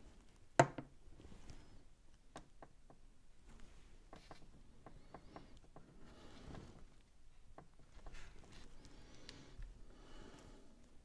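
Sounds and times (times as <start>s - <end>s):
wooden strips tapping on wood: 4.1s - 5.9s.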